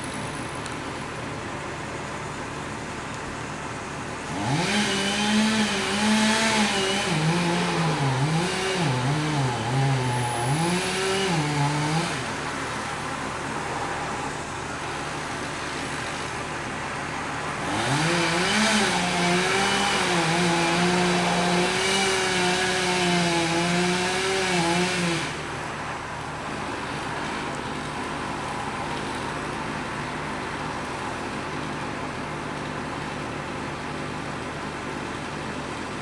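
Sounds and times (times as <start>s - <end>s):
steady engine hum: 0.0s - 36.0s
chainsaw revving and cutting: 4.2s - 12.8s, 17.5s - 25.6s.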